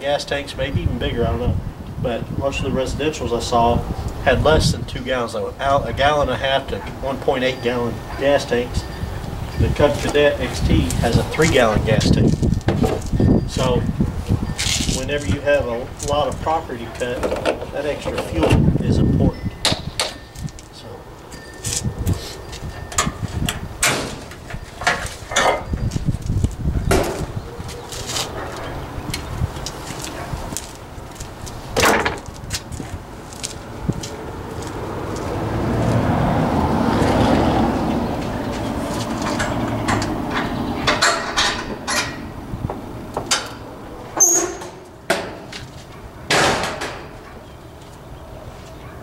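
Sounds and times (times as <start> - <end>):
metal tailgate knocks and clanks: 12.6 - 13.1, 19.6 - 20.2, 22.8 - 25.7, 26.8 - 27.4, 31.8 - 32.3, 39.2 - 45.6, 46.2 - 47.3
short high squeak: 44.2 - 44.8.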